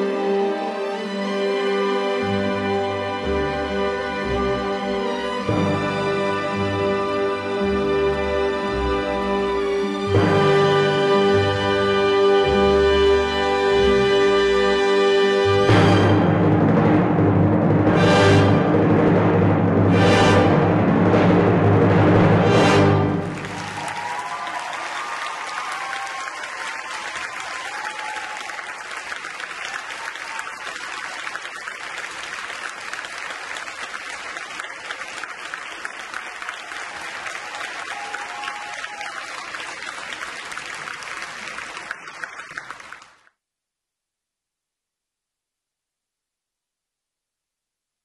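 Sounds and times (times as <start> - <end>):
audience applauding: 22.9 - 43.3.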